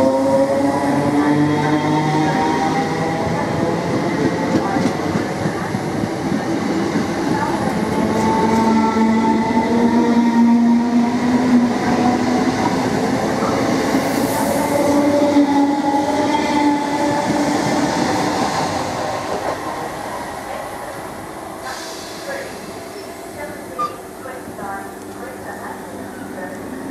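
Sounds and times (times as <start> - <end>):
train rumble: 0.0 - 26.9.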